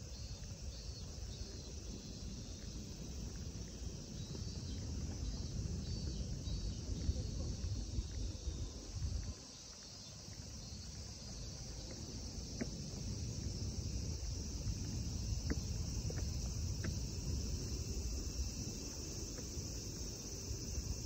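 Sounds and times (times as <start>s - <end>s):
cicada chorus: 0.0s - 21.0s
footfalls on stone steps: 9.7s - 17.7s.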